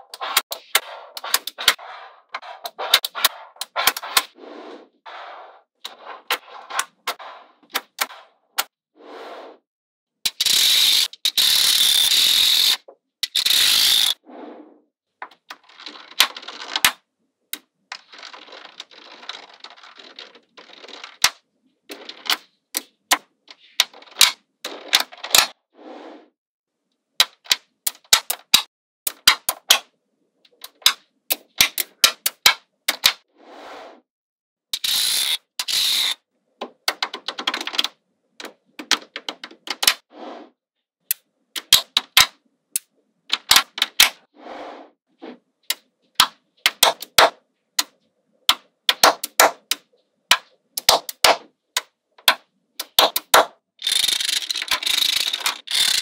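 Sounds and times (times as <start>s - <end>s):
magnetic balls clicking together: 45.7s - 56.0s.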